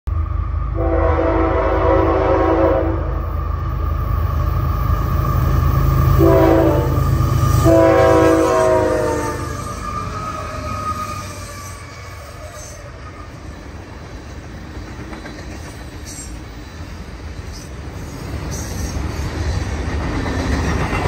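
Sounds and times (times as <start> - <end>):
train approaching: 0.1 - 21.0
locomotive air horn: 0.7 - 3.2, 6.1 - 10.9.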